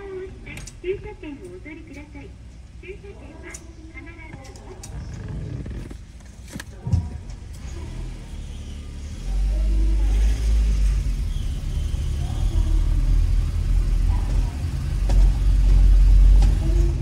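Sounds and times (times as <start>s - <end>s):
car engine and tyres rumbling: 3.6s - 17.0s.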